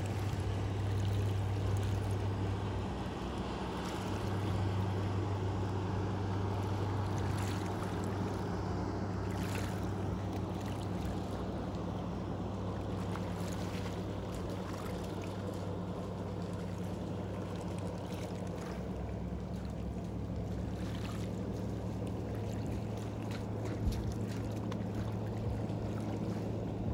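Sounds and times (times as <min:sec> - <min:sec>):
low motor hum: 0:00.0 - 0:26.9
water lapping and splashing: 0:00.0 - 0:26.9.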